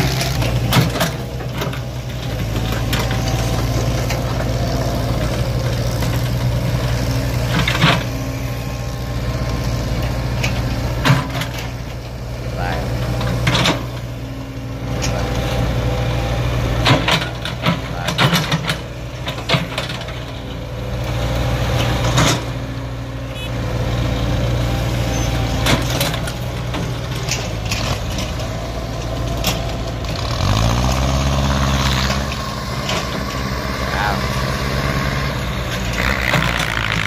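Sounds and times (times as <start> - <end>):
excavator diesel engine running: 0.0 - 37.0
engine revving up: 14.6 - 22.7, 23.3 - 37.0
sharp knocks and clanks: 16.8 - 20.3.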